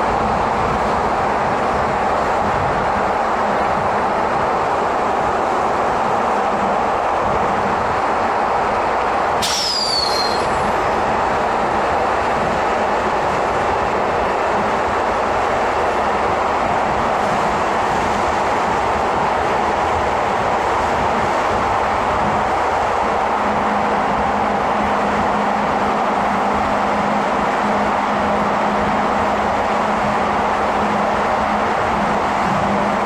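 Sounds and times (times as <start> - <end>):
subway wheels rumbling on rail: 0.0 - 33.0
high squeal falling in pitch: 9.4 - 10.7.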